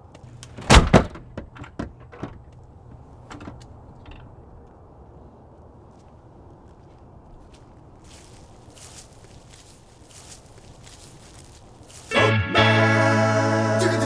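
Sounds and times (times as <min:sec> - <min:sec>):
outdoor background noise: 0:00.0 - 0:14.0
door shutting with thud: 0:00.5 - 0:02.4.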